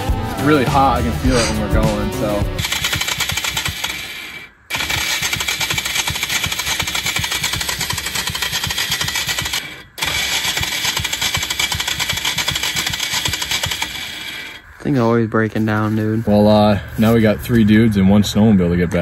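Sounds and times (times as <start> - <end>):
electric starter cranking: 2.6 - 14.8.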